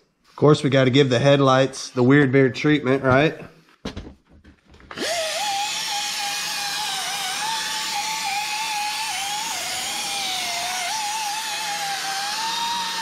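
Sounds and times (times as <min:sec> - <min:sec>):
rotary tool motor whine: 0:04.9 - 0:13.0.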